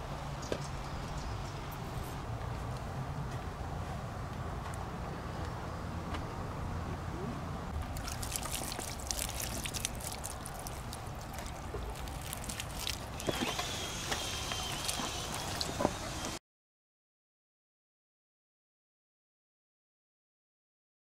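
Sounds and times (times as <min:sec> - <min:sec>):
water pouring onto soil and leaves: 0:07.8 - 0:15.8.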